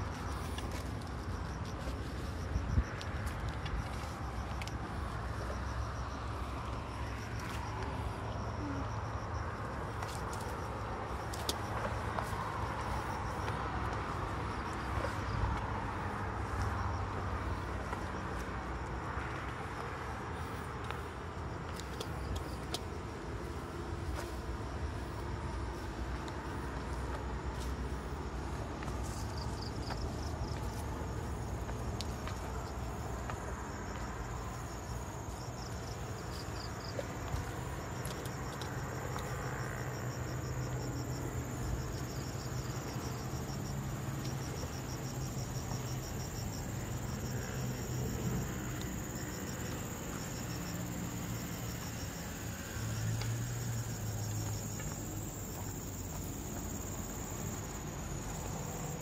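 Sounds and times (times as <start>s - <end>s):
insects chirping: 0.0s - 59.0s
high-pitched insect whine: 29.0s - 59.0s.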